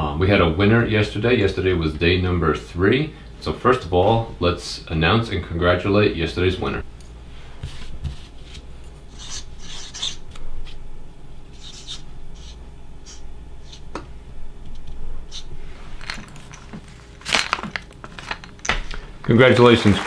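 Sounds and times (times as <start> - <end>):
marker writing on paper: 9.1 - 10.2, 11.5 - 13.8.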